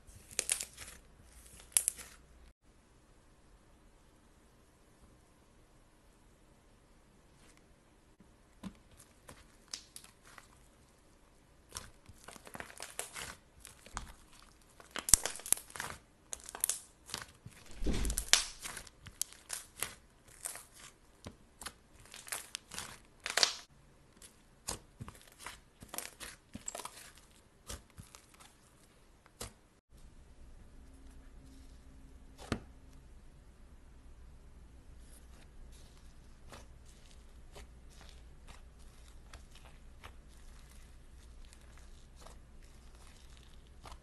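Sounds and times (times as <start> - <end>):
slime crunchy crackles: 11.7 - 21.0, 21.6 - 24.3, 25.1 - 28.6.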